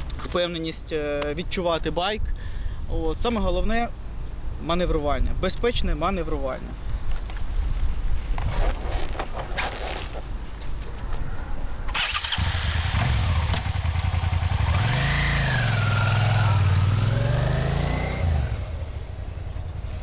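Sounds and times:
motorcycle engine revving: 12.0s - 19.7s.

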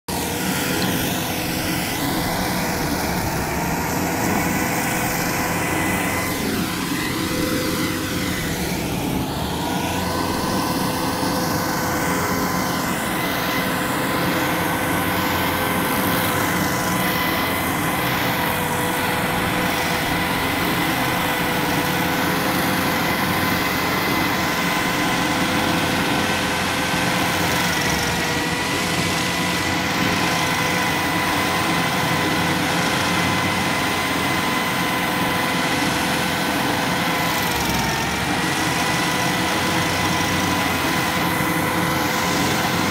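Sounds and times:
high whine: 0.1s - 31.8s
stump grinder grinding: 0.1s - 42.9s.

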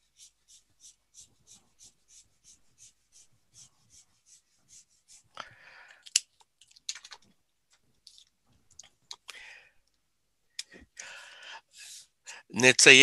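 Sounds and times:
marker scratching on paper: 0.0s - 5.3s
markers clicking on desk: 6.1s - 7.3s.

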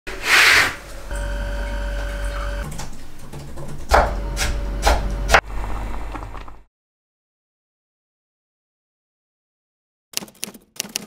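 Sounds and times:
low hum: 1.1s - 2.6s, 4.0s - 6.6s
machine-like whine: 1.1s - 2.6s, 4.0s - 5.8s.

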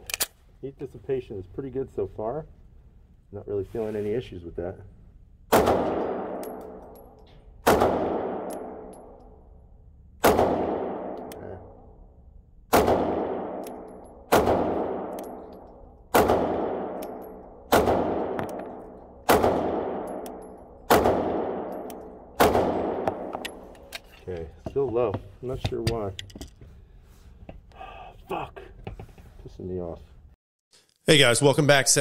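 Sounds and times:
pistol shots echoing indoors: 5.5s - 23.8s.

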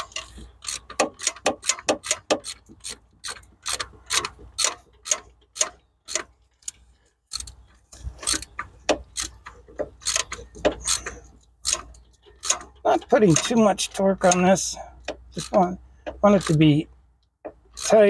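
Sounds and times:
socket ratchet clicking: 0.1s - 7.6s, 8.2s - 13.5s.

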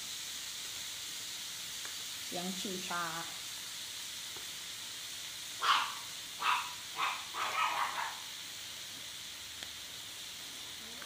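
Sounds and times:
food sizzling on grill: 0.0s - 11.0s
dog barking: 5.6s - 8.3s.

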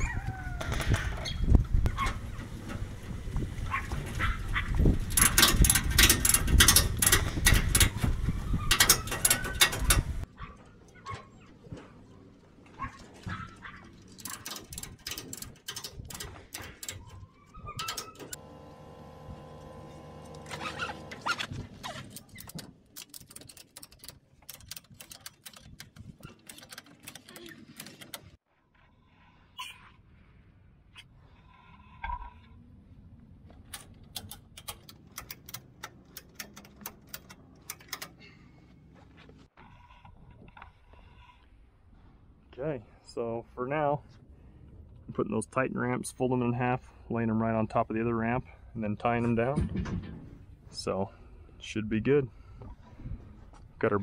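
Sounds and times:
ratchet strap clicking: 5.1s - 8.0s.

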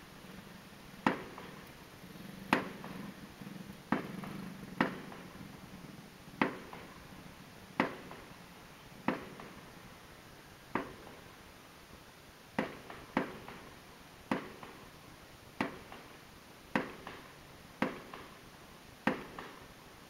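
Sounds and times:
distant fireworks bangs: 1.0s - 1.7s, 2.4s - 8.4s, 9.0s - 9.8s, 10.7s - 11.3s, 12.6s - 15.0s, 15.6s - 18.4s, 19.0s - 19.7s.

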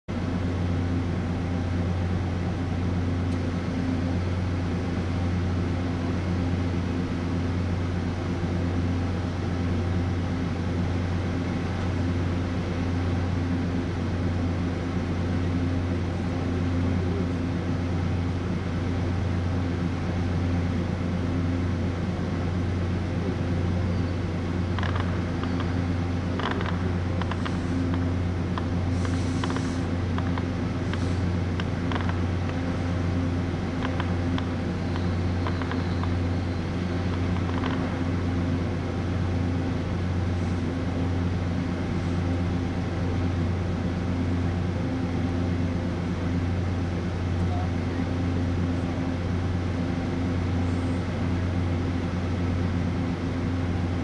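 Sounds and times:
diesel train engine idling: 0.1s - 54.0s
faint clicks and squeaks: 24.7s - 25.8s, 33.8s - 38.0s.

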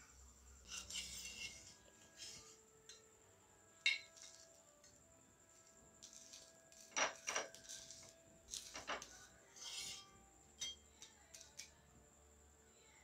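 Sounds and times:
metal spatula scraping on griddle: 0.6s - 3.0s, 6.0s - 10.8s.

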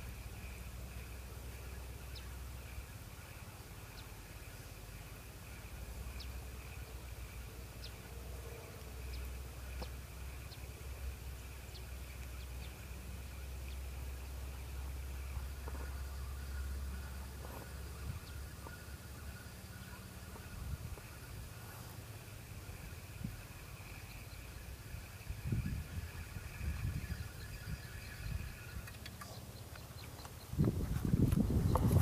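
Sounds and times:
high insect drone: 0.0s - 29.5s
birds chirping: 0.0s - 32.0s
wind rumble on microphone: 8.3s - 29.0s, 30.4s - 32.0s.

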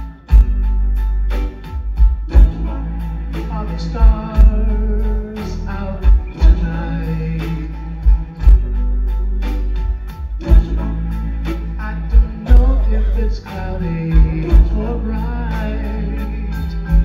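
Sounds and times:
heavy low drum thumps: 0.0s - 15.5s, 16.6s - 17.0s
keyboards: 0.0s - 17.0s
vocal group singing in harmony: 2.3s - 8.7s, 10.4s - 17.0s.

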